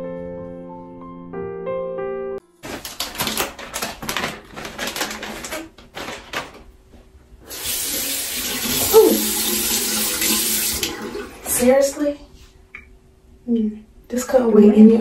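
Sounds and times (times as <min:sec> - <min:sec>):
faucet running into basin: 0:07.5 - 0:11.8
water splashing in sink: 0:07.5 - 0:12.0.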